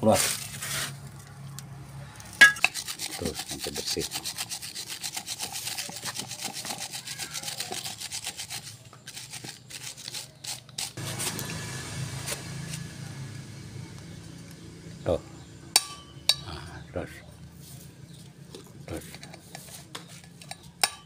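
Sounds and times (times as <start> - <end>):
hand tool scraping metal: 2.3 - 11.5, 18.9 - 21.0.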